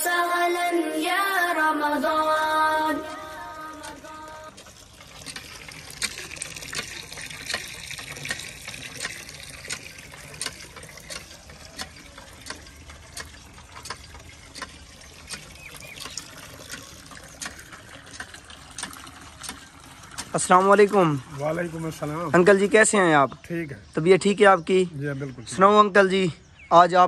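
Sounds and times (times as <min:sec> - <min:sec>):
water gushing and splashing: 0:03.1 - 0:23.1.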